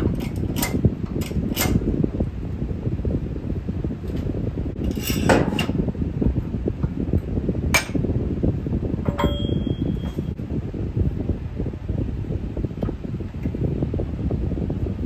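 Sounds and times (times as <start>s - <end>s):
fan humming: 0.0s - 15.0s
steel parts clanking: 4.8s - 5.8s, 9.1s - 10.3s.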